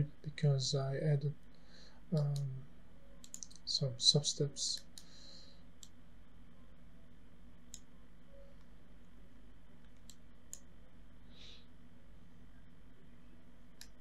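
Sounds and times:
faint low electrical hum: 0.0 - 14.0
computer mouse clicks: 3.2 - 3.7, 9.8 - 10.7, 13.8 - 14.0.

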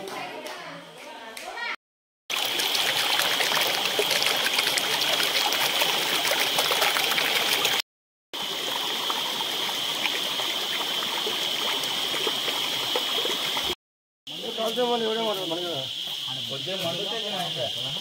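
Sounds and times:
stream running over rocks: 2.3 - 7.8, 8.4 - 13.8.

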